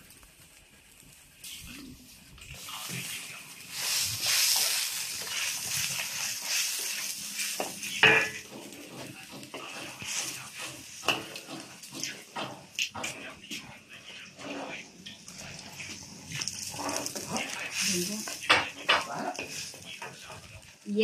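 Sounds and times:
liquid sizzling in a hot wok: 0.0 - 21.0
metal ladle scraping a wok: 3.7 - 13.2, 14.4 - 20.2.

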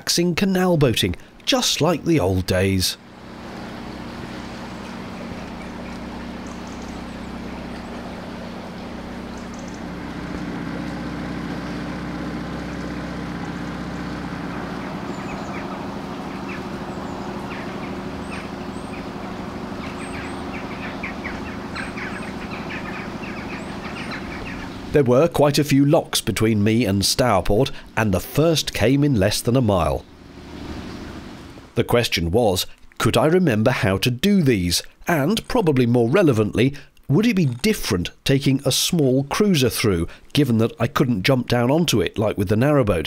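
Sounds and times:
birds chirping: 0.6 - 33.0
outboard motor running: 1.2 - 31.8.

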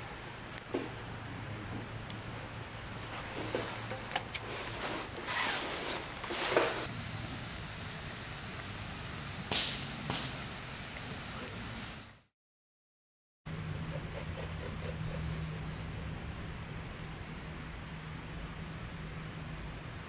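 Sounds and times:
campfire crackling and hissing: 0.0 - 12.3
sharp pops of fire: 5.2 - 12.2.

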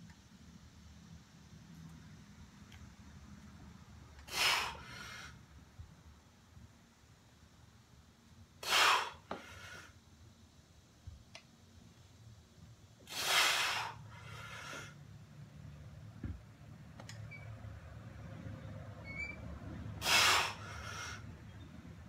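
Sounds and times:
forceful exhales: 4.3 - 5.4, 8.6 - 10.0, 13.1 - 15.0, 20.0 - 21.2
person breathing hard: 4.3 - 5.4, 13.1 - 15.0, 20.0 - 21.3.

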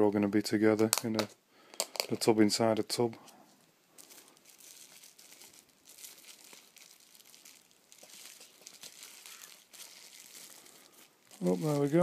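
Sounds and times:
tissue paper crinkling: 4.0 - 12.0.

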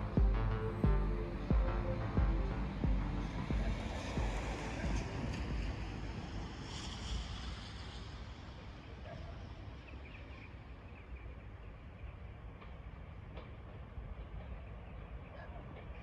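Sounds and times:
wind rumble on microphone: 0.0 - 9.7.

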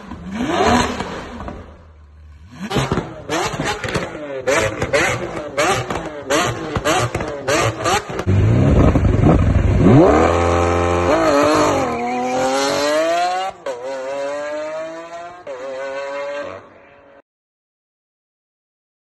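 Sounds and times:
sports car engine revving: 0.0 - 16.6
car accelerating through gears: 2.5 - 16.6.

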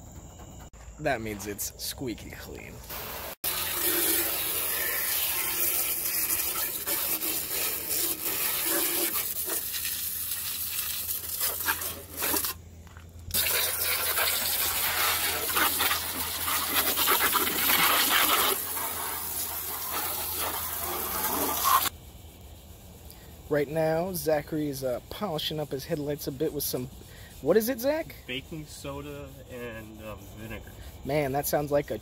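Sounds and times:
water spraying from hose: 2.8 - 12.6, 13.3 - 21.9.

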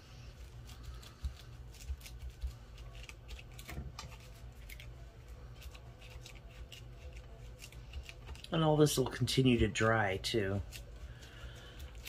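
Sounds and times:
paper rustling and crinkling: 0.3 - 9.4.

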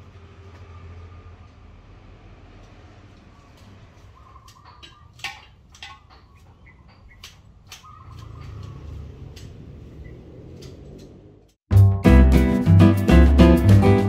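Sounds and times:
chickens clucking: 4.0 - 9.0.

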